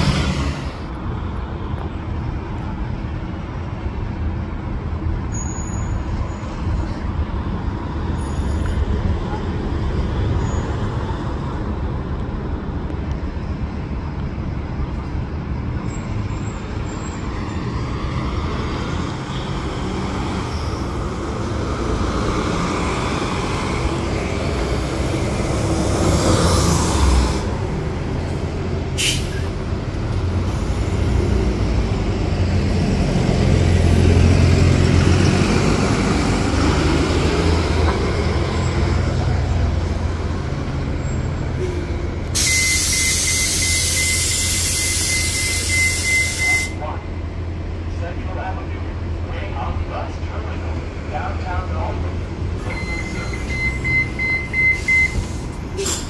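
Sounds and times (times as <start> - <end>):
bus engines running: 0.0 - 56.0
air brakes hissing: 29.0 - 29.6, 41.6 - 46.8, 52.7 - 56.0
sharp air release: 29.0 - 29.6, 42.3 - 46.7, 54.7 - 56.0.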